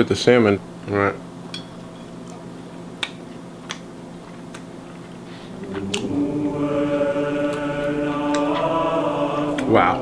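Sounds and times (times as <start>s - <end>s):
fork clinking on plate: 1.5s - 2.2s
choir singing sustained chord: 5.5s - 10.0s.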